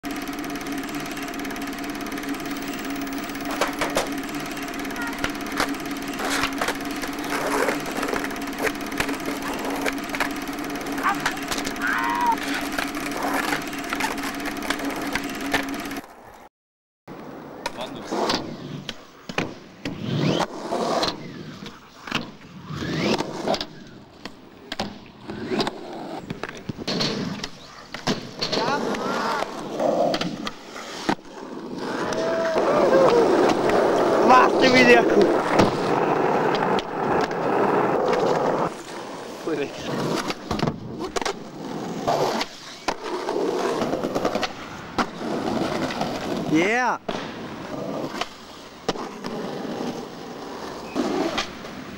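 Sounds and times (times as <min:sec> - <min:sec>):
skateboard trucks scraping: 0:00.0 - 0:16.5, 0:17.1 - 0:51.9
skateboard wheels rolling: 0:00.0 - 0:16.5, 0:17.1 - 0:51.9
skateboard clacking on landing: 0:03.0 - 0:04.2, 0:24.2 - 0:31.3, 0:32.0 - 0:38.7.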